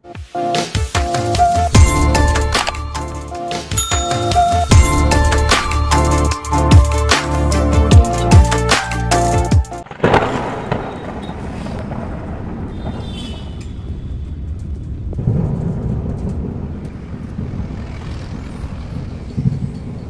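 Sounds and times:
car engine and road rumble: 15.6 - 20.0.

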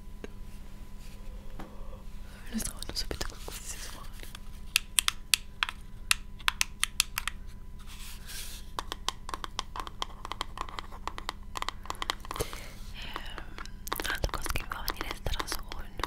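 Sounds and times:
fingernails tapping on hard object: 8.8 - 12.4.

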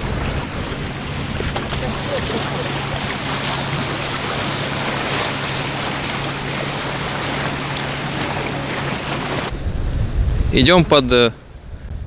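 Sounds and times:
seawater splashing over rocks: 0.0 - 9.6.

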